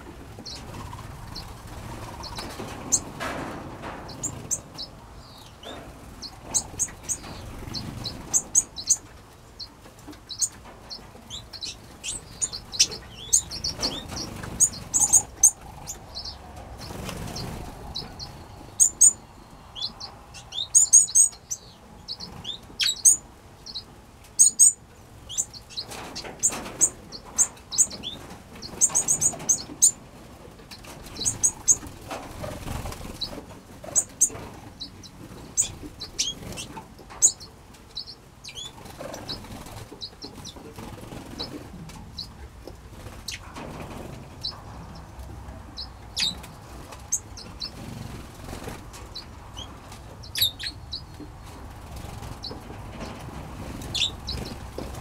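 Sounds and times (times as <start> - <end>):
wings fluttering: 0.0 - 5.0, 5.6 - 9.1, 9.9 - 19.2, 25.3 - 37.4, 38.5 - 45.1, 45.7 - 50.7, 51.4 - 55.0
finches chirping: 4.1 - 9.0, 10.3 - 30.0, 31.0 - 40.6, 45.7 - 47.8, 48.6 - 51.4, 53.8 - 54.7.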